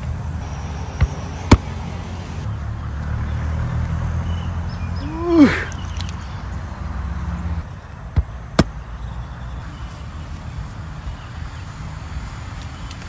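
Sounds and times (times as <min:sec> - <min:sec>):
person exclaiming: 0:05.0 - 0:05.8.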